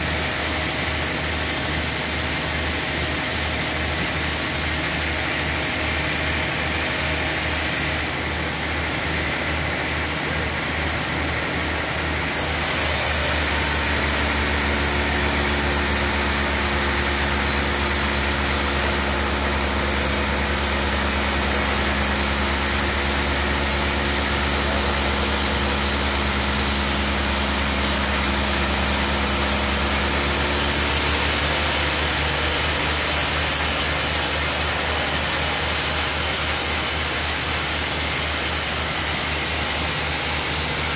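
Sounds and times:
band saw humming: 0:00.0 - 0:40.9
saw blade cutting wood: 0:11.7 - 0:40.9.

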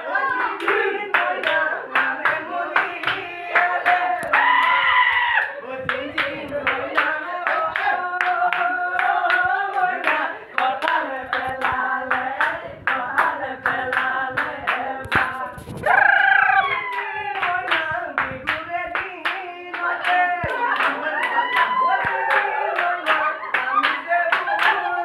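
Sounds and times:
hands clapping in rhythm: 0:00.0 - 0:04.8, 0:05.4 - 0:25.0
group singing: 0:00.0 - 0:25.0
high cry sliding down in pitch: 0:15.8 - 0:17.2.

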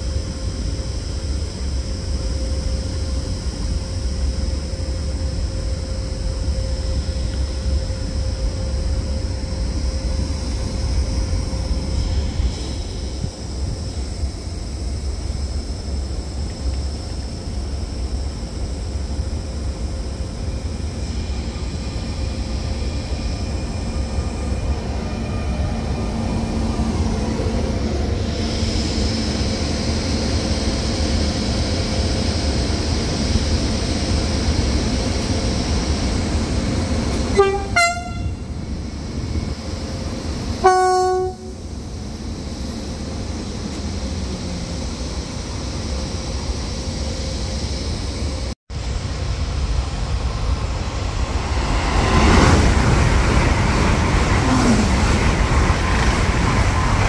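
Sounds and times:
freight train rumbling past: 0:00.0 - 0:57.0
train horn blasts: 0:37.2 - 0:38.6, 0:40.6 - 0:41.6.

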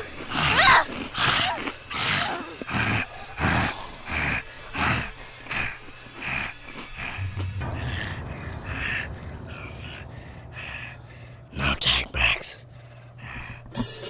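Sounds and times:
person breathing heavily: 0:02.0 - 0:11.5, 0:12.6 - 0:13.8.

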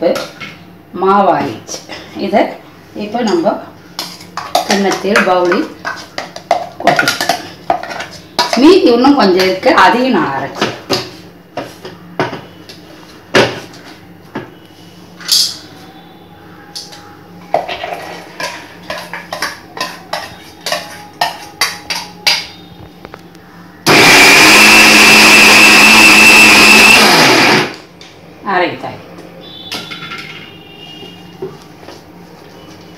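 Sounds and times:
electric mixer grinder whining: 0:23.9 - 0:27.8.

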